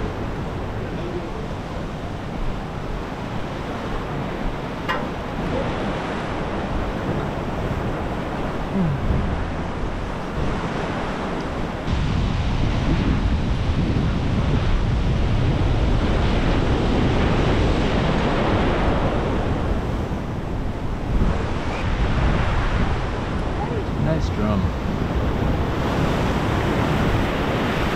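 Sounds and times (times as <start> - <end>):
wind buffeting microphone: 0.0 - 27.9.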